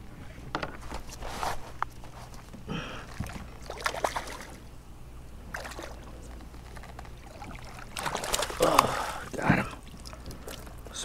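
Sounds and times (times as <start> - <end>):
faint low hum: 0.0 - 11.0
water splashing and dripping: 3.1 - 4.6, 5.5 - 11.0.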